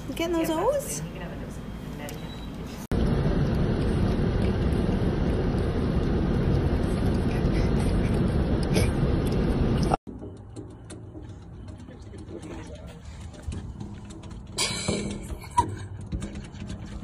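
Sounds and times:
car cabin road noise: 0:00.0 - 0:10.0.

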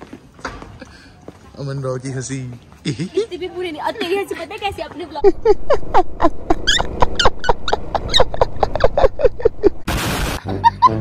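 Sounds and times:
person laughing hard: 0:05.2 - 0:09.8, 0:10.4 - 0:11.0.

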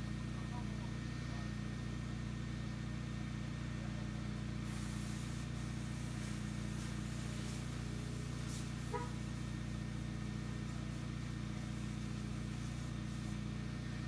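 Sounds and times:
motor and pump hum: 0:03.8 - 0:14.0
spraying water hiss: 0:04.6 - 0:13.6.

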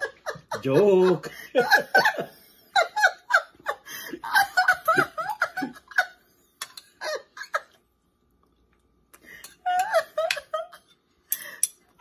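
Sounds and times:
man and woman laughing: 0:00.0 - 0:06.3, 0:06.9 - 0:07.8, 0:09.6 - 0:10.9.

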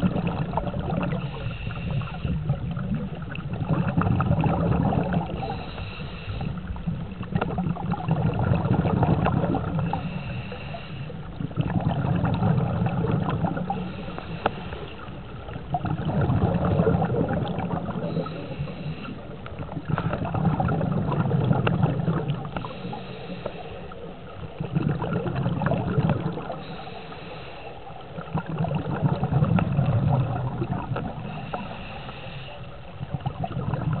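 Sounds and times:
rumble of exhaled bubbles: 0:00.0 - 0:34.0
regulator hiss on inhalation: 0:01.2 - 0:02.4, 0:05.4 - 0:06.7, 0:09.9 - 0:11.2, 0:13.8 - 0:15.1, 0:18.0 - 0:19.3, 0:22.6 - 0:24.0, 0:26.5 - 0:27.8, 0:31.2 - 0:32.7.

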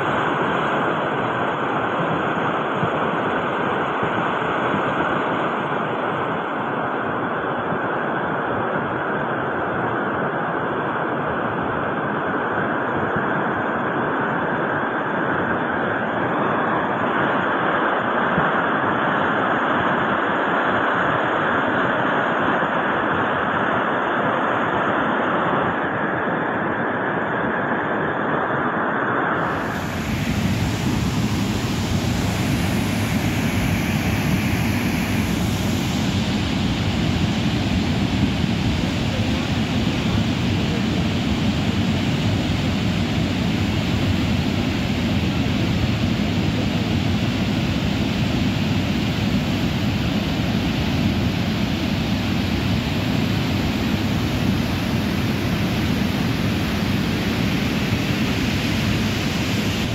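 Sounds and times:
floodwater rushing over boulders: 0:29.4 - 0:48.1.

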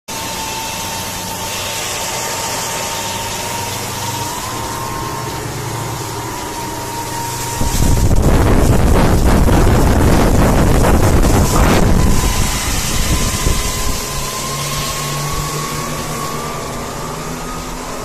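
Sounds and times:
outboard engines droning: 0:00.1 - 0:18.0
wind buffeting microphone: 0:07.2 - 0:16.0.

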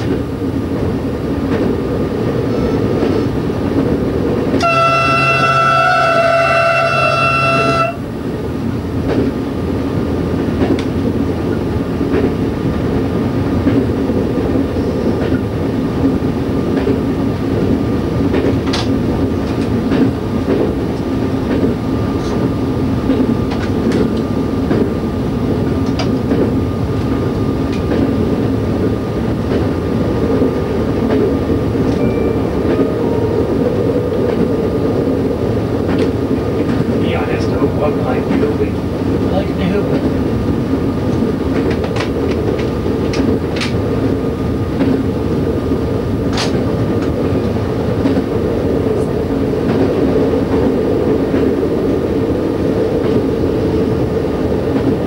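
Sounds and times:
train engine drone: 0:00.0 - 0:55.0.

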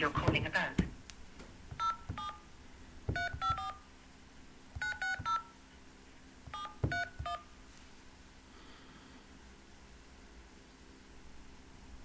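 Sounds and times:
telephone keypad tones: 0:01.7 - 0:02.4, 0:03.1 - 0:03.8, 0:04.8 - 0:05.6, 0:06.5 - 0:07.5.

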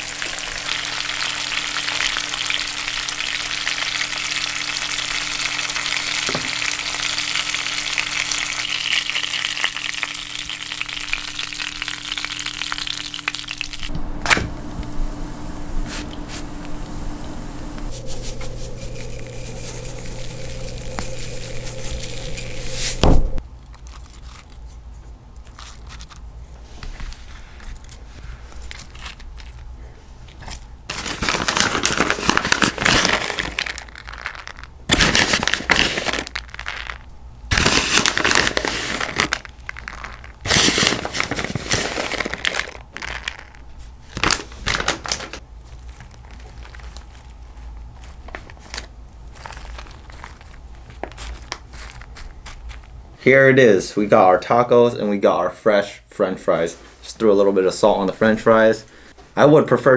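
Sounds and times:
crinkling and rustling: 0:17.8 - 0:53.2.

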